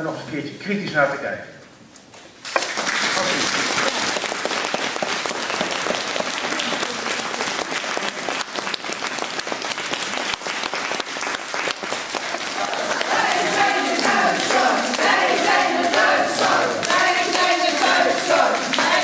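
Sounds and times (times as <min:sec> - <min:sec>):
crowd applauding: 0:02.4 - 0:19.0
group of voices singing: 0:12.5 - 0:19.0.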